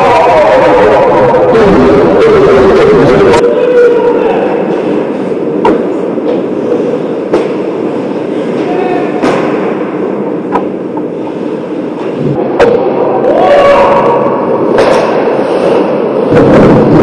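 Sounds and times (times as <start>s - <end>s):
people shouting: 0.0s - 4.7s, 8.6s - 9.4s, 12.5s - 14.5s
hockey sticks and puck clacking: 14.6s - 15.9s.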